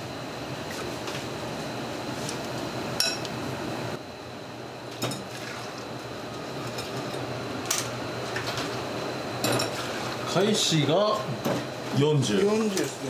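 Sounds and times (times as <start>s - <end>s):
kitchen background noise: 9.4s - 13.0s.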